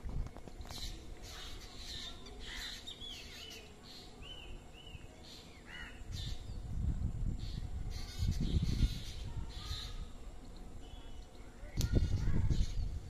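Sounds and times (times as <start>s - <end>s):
birds chirping: 0.2s - 13.0s
harsh scratchy bird calls: 0.5s - 4.0s, 7.9s - 10.1s.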